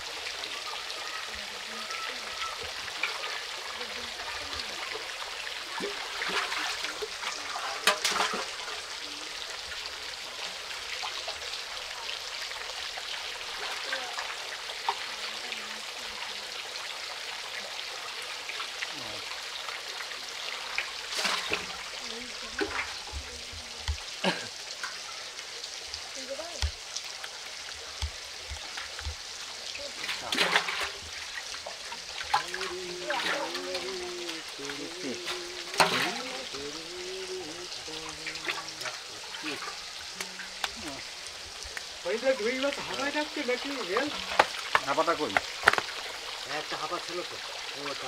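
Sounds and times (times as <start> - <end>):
running water: 0.0 - 48.0
sharp knocks or splashes: 5.7 - 8.8, 20.8 - 21.8, 26.4 - 36.6, 42.8 - 46.2.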